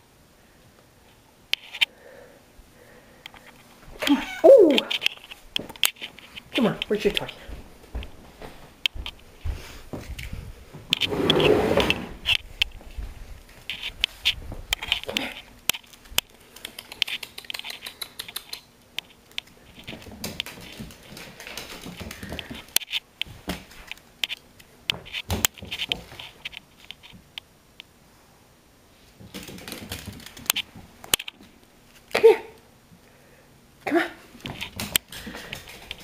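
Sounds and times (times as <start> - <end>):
rustling scrape: 10.9 - 15.4.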